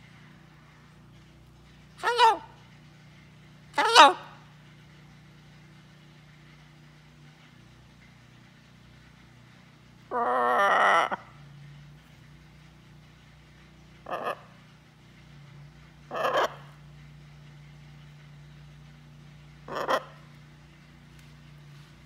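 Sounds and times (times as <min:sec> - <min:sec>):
macaw calling: 0:03.8 - 0:04.4, 0:10.1 - 0:11.3, 0:14.0 - 0:14.5, 0:16.1 - 0:16.7, 0:19.7 - 0:20.4
macaw squawks: 0:10.1 - 0:11.3, 0:14.0 - 0:14.5, 0:16.1 - 0:16.7, 0:19.7 - 0:20.2.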